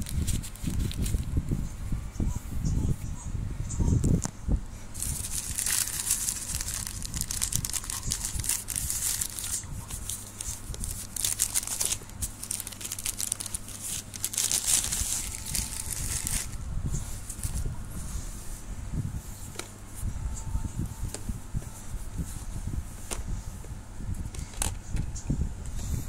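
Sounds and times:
plastic bag crinkling and tearing: 0:00.0 - 0:01.4, 0:05.0 - 0:16.6.

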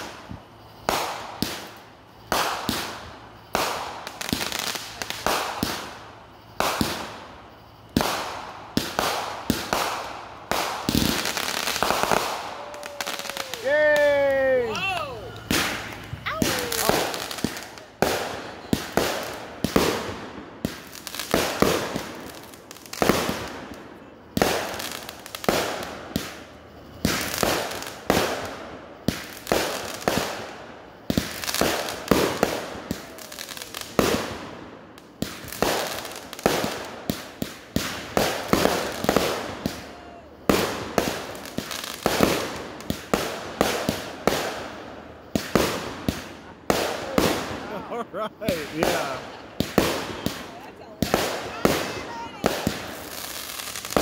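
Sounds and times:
fireworks bangs echoing: 0:00.0 - 0:23.8, 0:24.4 - 0:54.0.

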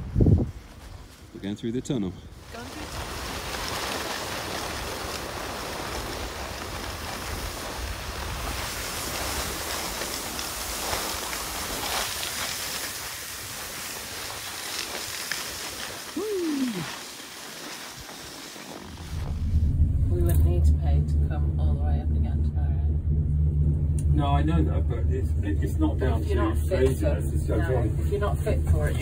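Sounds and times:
skis hissing over packed snow: 0:00.0 - 0:19.6.

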